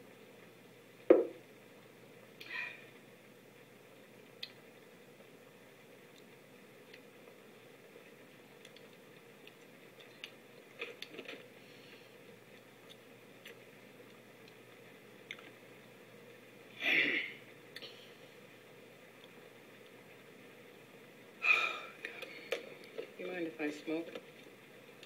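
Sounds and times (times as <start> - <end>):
faint clicks: 4.3 - 4.7, 8.6 - 11.3.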